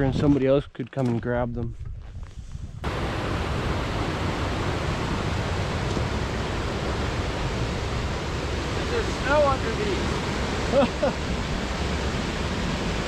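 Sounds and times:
rushing mountain creek: 2.8s - 13.0s.

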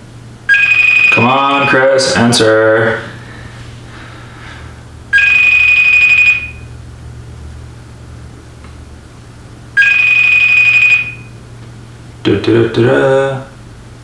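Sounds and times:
phone call ringtone: 0.5s - 2.1s, 5.1s - 6.7s, 9.8s - 11.3s.

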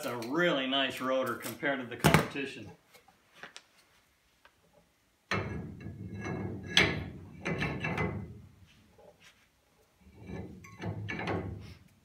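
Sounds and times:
metal knocking and scraping on metal: 5.3s - 9.2s, 10.0s - 11.9s.

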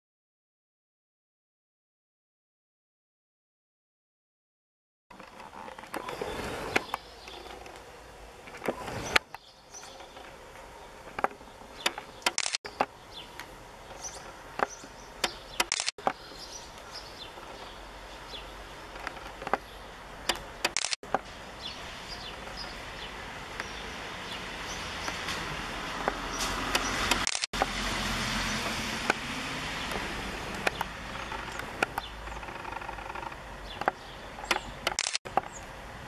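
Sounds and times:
bird chirps: 8.7s - 19.0s.

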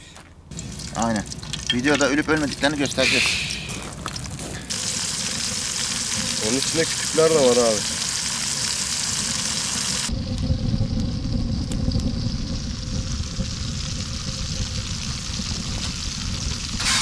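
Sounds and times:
fish sizzling in oil: 0.6s - 10.1s, 11.5s - 17.0s
faint steady hum: 8.1s - 16.9s
wind rumble on microphone: 10.1s - 17.0s.

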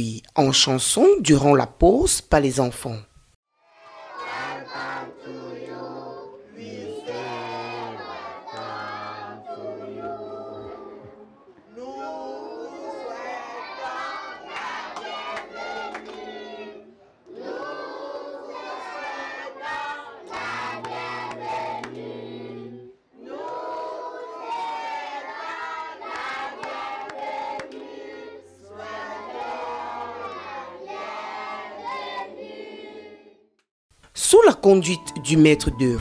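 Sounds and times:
children singing: 3.7s - 33.4s
hand claps: 19.7s - 22.1s, 26.1s - 27.9s.

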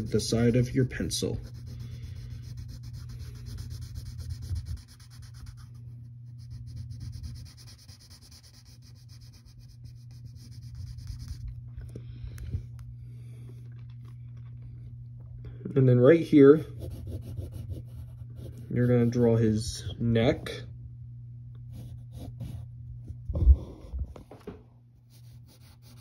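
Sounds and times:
pencil scratching on paper: 0.0s - 11.5s, 16.7s - 19.3s, 21.7s - 22.6s, 25.1s - 26.0s
steady low hum: 0.0s - 26.0s.

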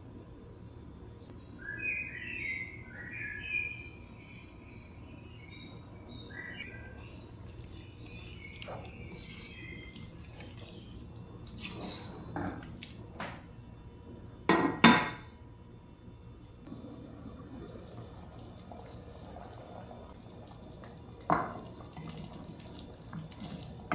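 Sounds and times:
wooden spoon stirring in a pot: 7.4s - 13.2s.

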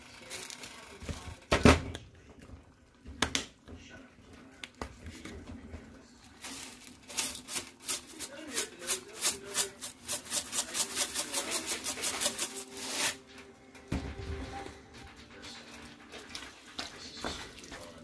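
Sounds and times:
spice shaker rattling: 6.4s - 13.2s.

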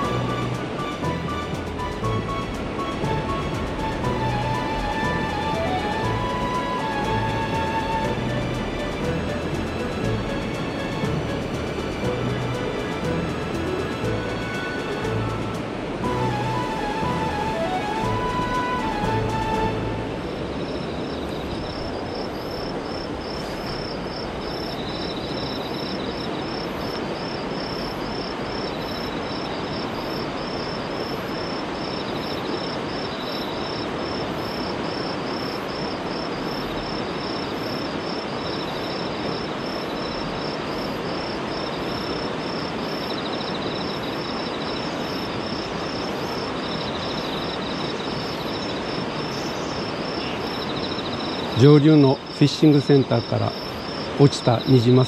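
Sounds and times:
river rushing over rapids: 0.0s - 55.0s.

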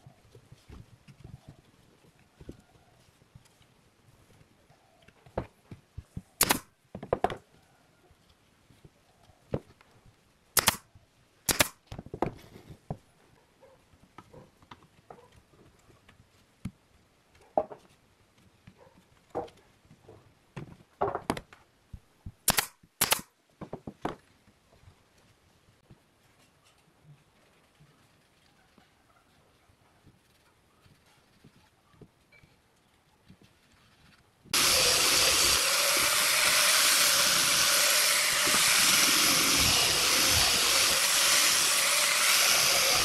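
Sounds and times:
nail gun shots: 6.4s - 6.7s, 10.6s - 10.9s, 11.5s - 11.8s, 22.5s - 23.3s
wood knocks and taps: 6.9s - 7.4s.

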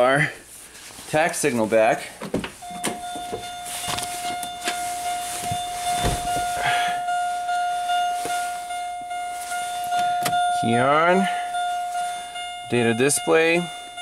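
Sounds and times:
pulsing electronic warning chime: 2.6s - 14.0s
dull thump: 5.4s - 6.6s.

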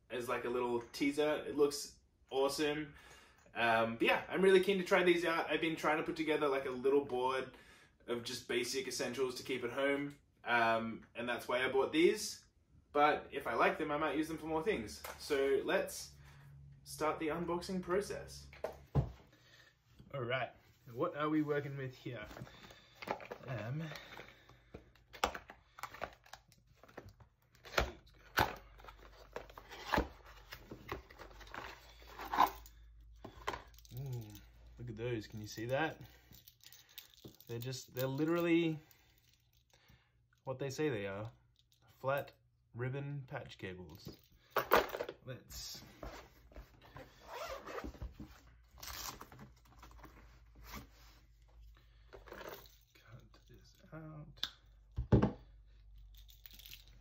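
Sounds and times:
zipper pulled open: 47.2s - 48.0s
tools shifting in a case: 52.1s - 52.9s.

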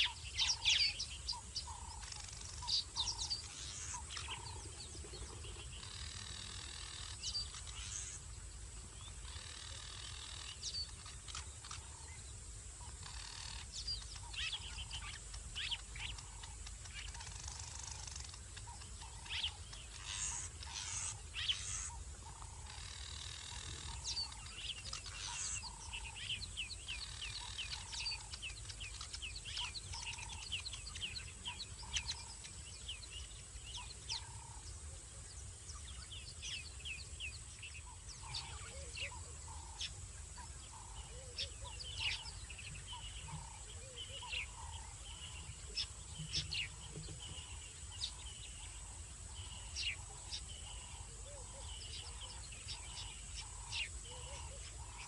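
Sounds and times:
birds chirping and calling: 0.0s - 55.0s.

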